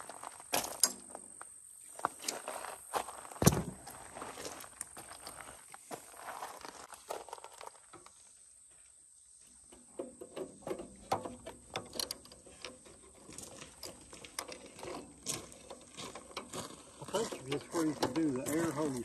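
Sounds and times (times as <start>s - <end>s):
small metal clicks and knocks: 9.7s - 19.0s.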